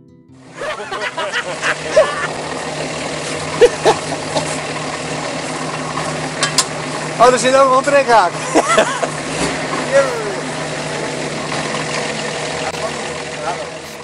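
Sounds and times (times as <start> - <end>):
car engine idling: 0.4 - 14.0
short voice-like calls: 9.9 - 11.4.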